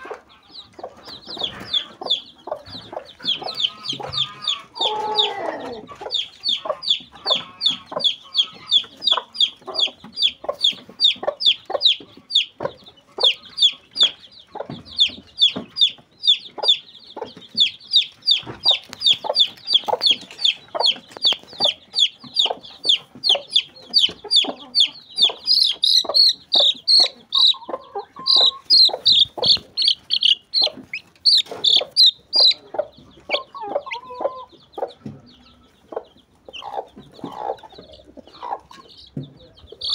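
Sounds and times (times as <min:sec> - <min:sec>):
chicks peeping: 0:00.0 - 0:39.9
hens clucking: 0:00.0 - 0:39.9.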